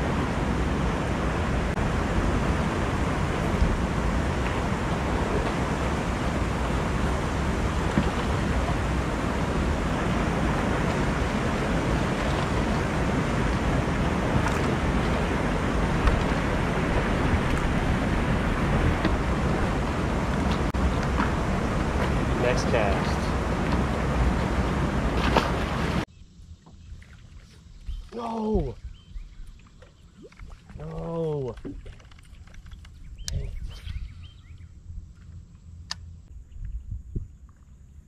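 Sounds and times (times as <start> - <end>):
wind rushing: 0.0 - 26.1
water noise: 0.0 - 36.3.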